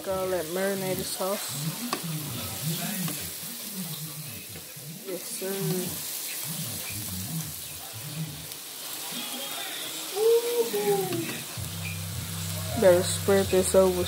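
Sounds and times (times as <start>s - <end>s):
patties sizzling in a pan: 0.0s - 14.0s
spatula scraping a pan: 0.4s - 10.1s
person speaking: 10.1s - 11.5s.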